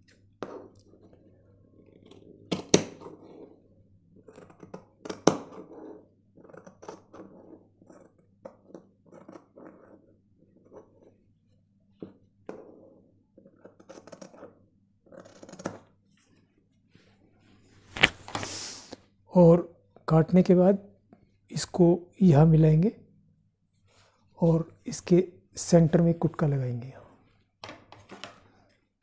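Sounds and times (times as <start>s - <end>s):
fabric rustling: 16.9s - 18.6s.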